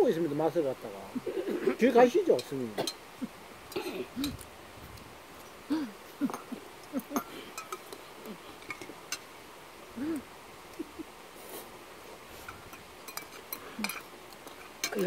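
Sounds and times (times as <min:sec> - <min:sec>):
utensils clicking against bowls: 0:06.3 - 0:08.0, 0:12.5 - 0:15.0.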